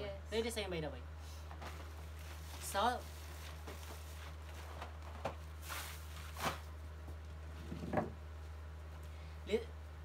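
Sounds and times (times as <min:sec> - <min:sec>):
steady low hum: 0:00.0 - 0:10.0
plastic wrappers rustling: 0:01.6 - 0:06.7.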